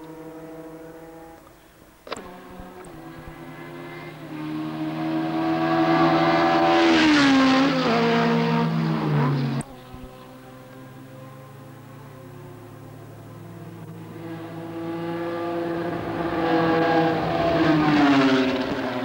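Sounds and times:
steady engine hum: 0:00.0 - 0:19.0
car passing at speed: 0:02.2 - 0:09.6, 0:13.3 - 0:19.0.

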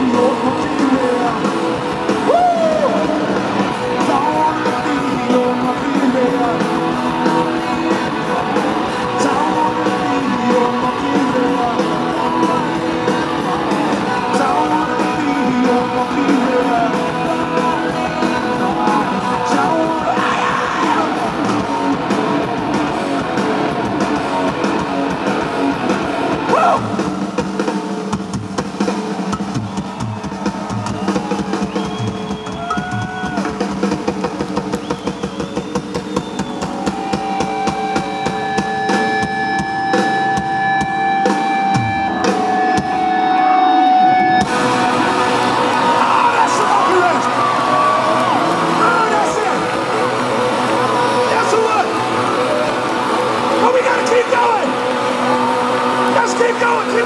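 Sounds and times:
electric guitar: 0:00.0 - 0:28.6, 0:29.3 - 0:57.0
pounding drum kit: 0:00.0 - 0:43.3, 0:44.3 - 0:57.0.

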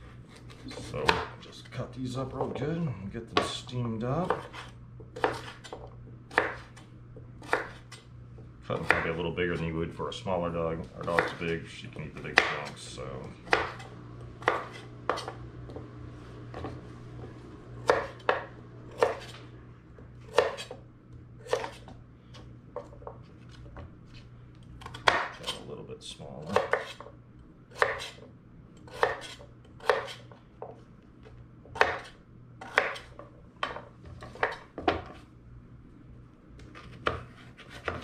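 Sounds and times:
knife chopping on wooden board: 0:00.4 - 0:01.4, 0:03.3 - 0:03.6, 0:04.2 - 0:06.8, 0:07.4 - 0:08.0, 0:08.7 - 0:09.2, 0:11.0 - 0:11.6, 0:12.2 - 0:12.7, 0:13.4 - 0:15.9, 0:16.5 - 0:16.8, 0:17.8 - 0:19.4, 0:20.3 - 0:20.8, 0:21.4 - 0:22.0, 0:24.8 - 0:25.6, 0:26.5 - 0:27.1, 0:27.7 - 0:30.8, 0:31.7 - 0:35.2, 0:36.7 - 0:38.0.

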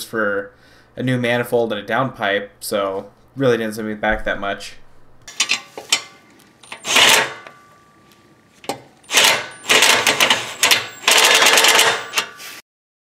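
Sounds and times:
ratchet wrench clicking: 0:06.6 - 0:07.3, 0:09.1 - 0:12.3.

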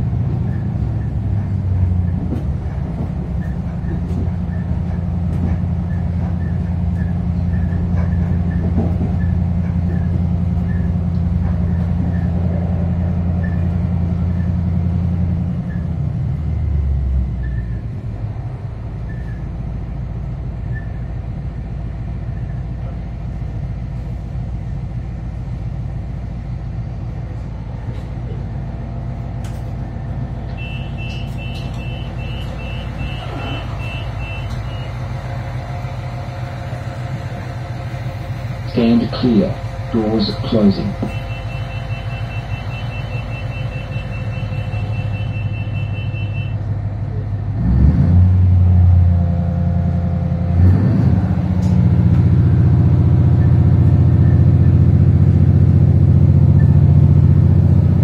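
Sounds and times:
diesel engine droning: 0:00.0 - 0:58.0
high door warning beeps: 0:30.6 - 0:35.0, 0:41.0 - 0:46.6.

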